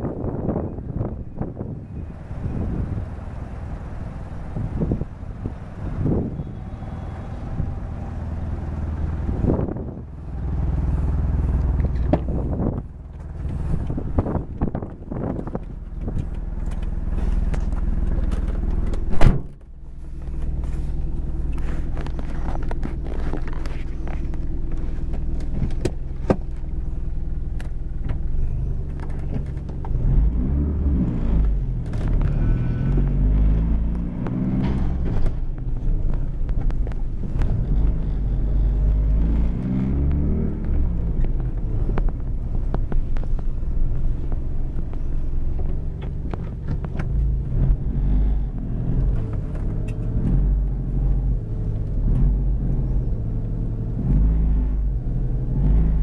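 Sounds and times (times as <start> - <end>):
rotary engine idling and revving: 0.0 - 56.0
loud thump: 19.1 - 19.6.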